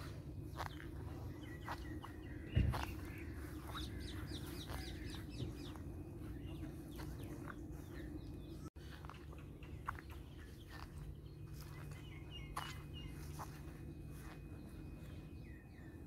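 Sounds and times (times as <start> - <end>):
birds chirping: 0.0 - 16.0
low outdoor rumble: 0.0 - 16.0.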